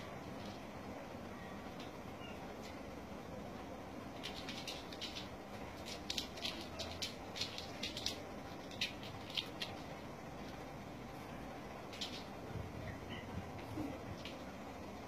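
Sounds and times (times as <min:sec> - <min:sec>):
steady low hiss: 0:00.0 - 0:15.0
kitten claws scrabbling on carpet: 0:04.2 - 0:10.6, 0:11.9 - 0:12.4.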